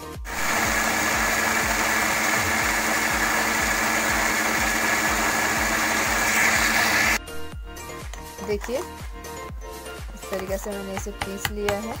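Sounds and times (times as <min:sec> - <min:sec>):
electric mixer grinder running: 0:00.1 - 0:07.2.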